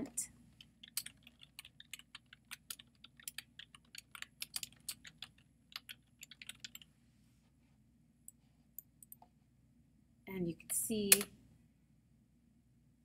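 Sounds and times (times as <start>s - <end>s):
typing on computer keyboard: 0.5s - 6.9s.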